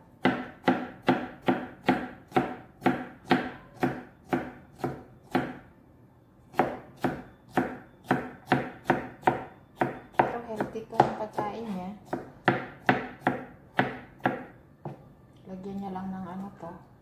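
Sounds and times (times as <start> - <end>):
knife chopping on plastic board: 0.2 - 5.6, 6.5 - 11.4, 12.0 - 15.0.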